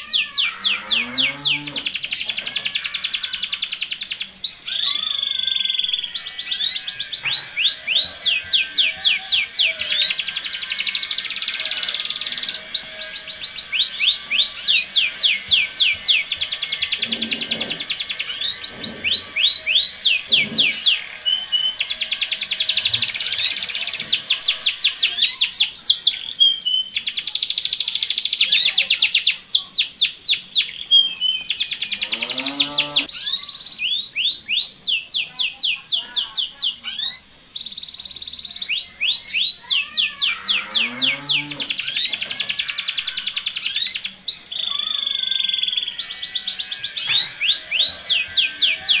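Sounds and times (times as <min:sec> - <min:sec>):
low rising bird call: 0:00.0 - 0:02.1, 0:32.0 - 0:33.1
female canary calls: 0:00.0 - 0:37.3, 0:38.4 - 0:49.0
canary singing trills: 0:00.0 - 0:49.0.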